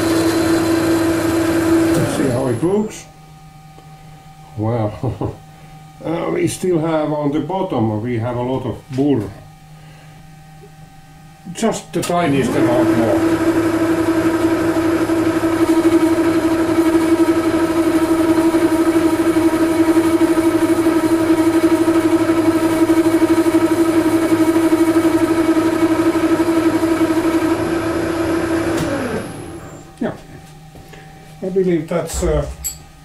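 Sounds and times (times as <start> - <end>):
metal lathe drive whining: 0.0 - 2.7, 12.2 - 14.6, 26.3 - 29.9.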